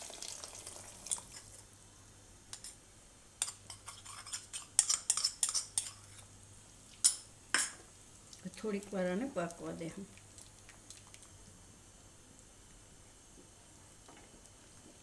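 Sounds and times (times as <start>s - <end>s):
spoon scraping plastic bowl: 3.7s - 6.2s.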